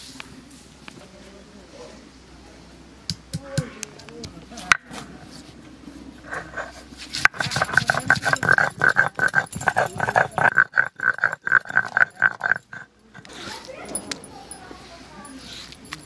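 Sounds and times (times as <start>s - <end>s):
grinding stone squeak: 6.2s - 14.6s
stone grinding on stone: 6.2s - 16.0s.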